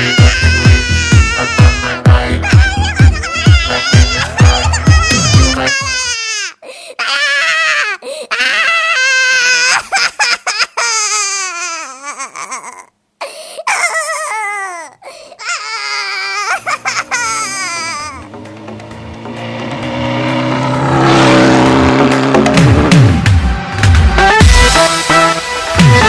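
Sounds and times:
cartoon character crying: 0:00.0 - 0:18.4.

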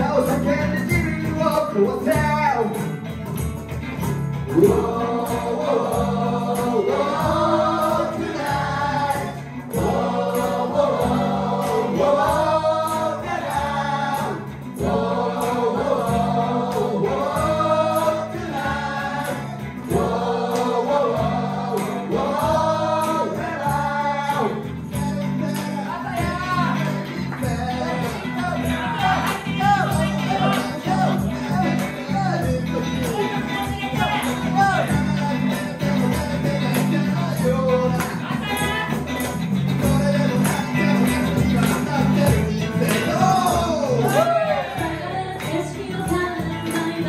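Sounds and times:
small live pop band: 0:00.0 - 0:47.0
people singing into microphones: 0:04.4 - 0:47.0
voices singing chorus phrase: 0:04.6 - 0:45.5.

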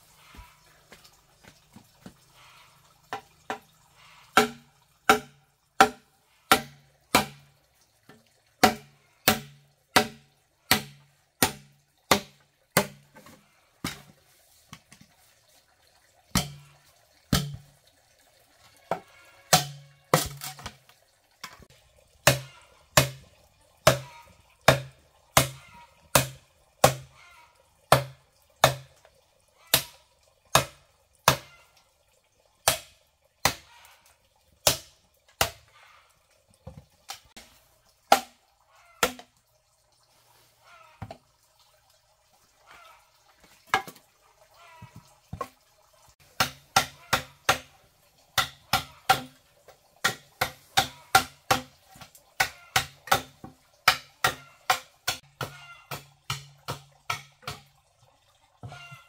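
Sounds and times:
machete chopping bamboo: 0:04.4 - 0:07.4, 0:08.6 - 0:13.0, 0:16.4 - 0:16.6, 0:17.3 - 0:17.6, 0:19.5 - 0:20.7, 0:22.2 - 0:23.2, 0:23.8 - 0:24.1, 0:24.7 - 0:27.1, 0:27.9 - 0:28.9, 0:32.6 - 0:33.7, 0:34.6 - 0:35.6, 0:38.1 - 0:38.4, 0:46.4 - 0:47.7, 0:48.4 - 0:49.4, 0:50.0 - 0:57.6.

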